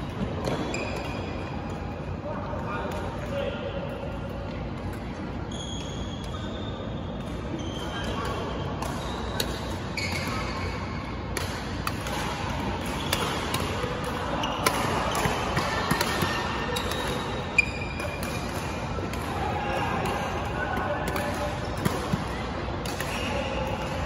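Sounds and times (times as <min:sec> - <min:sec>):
rackets striking shuttlecock: 0:11.2 - 0:24.0
shoes squeaking on floor: 0:17.5 - 0:18.0.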